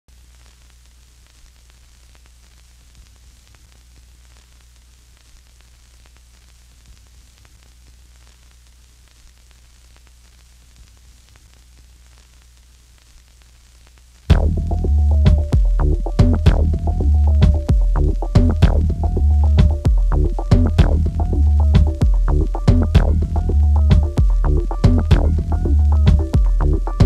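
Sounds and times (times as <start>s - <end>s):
soft crackles: 0.1s - 14.3s
faint hiss: 0.1s - 27.0s
low steady hum: 14.0s - 27.0s.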